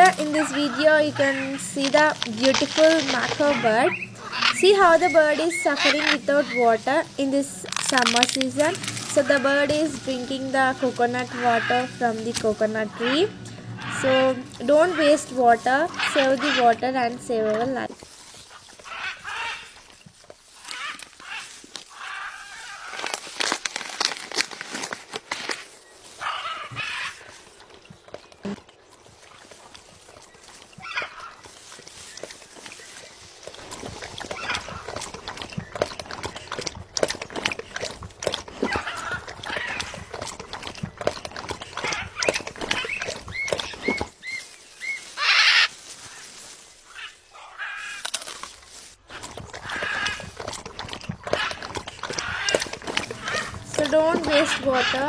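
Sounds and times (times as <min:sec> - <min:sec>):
macaw squawking: 0:00.0 - 0:17.9, 0:18.5 - 0:19.8, 0:26.2 - 0:27.4, 0:30.8 - 0:32.1, 0:33.7 - 0:36.8, 0:41.6 - 0:48.1, 0:49.1 - 0:55.0
beak cracking coconut: 0:21.8 - 0:25.7.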